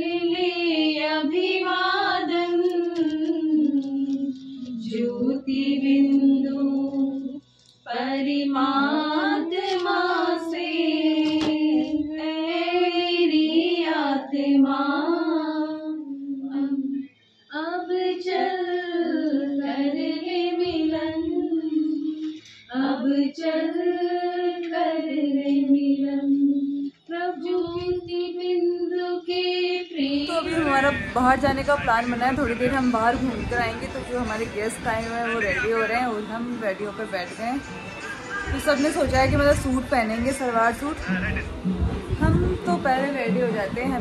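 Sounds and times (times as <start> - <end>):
woman singing: 0.0 - 35.0.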